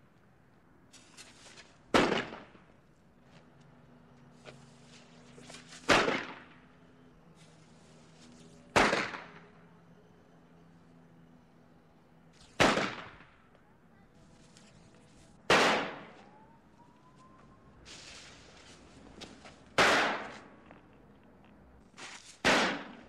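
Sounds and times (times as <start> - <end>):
firecracker bangs: 1.9 - 2.7, 5.8 - 6.6, 8.7 - 9.4, 12.4 - 13.4, 15.4 - 16.2, 19.7 - 20.5, 22.4 - 23.0.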